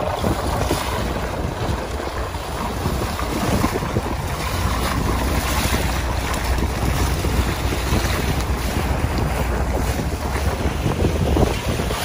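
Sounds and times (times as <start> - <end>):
low rumble: 0.0 - 12.0
waves washing: 0.0 - 12.0
wind buffeting microphone: 0.0 - 12.0.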